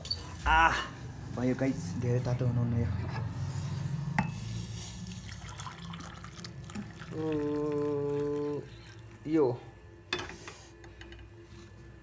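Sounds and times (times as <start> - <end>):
water sloshing and pouring: 4.9 - 9.2.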